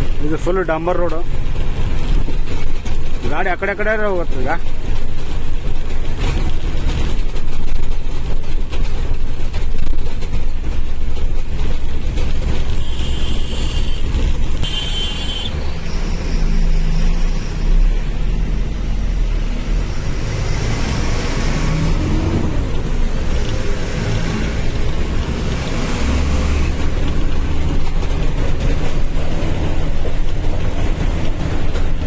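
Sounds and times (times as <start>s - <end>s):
road noise: 0.0s - 32.0s
truck engine at low revs: 0.0s - 32.0s.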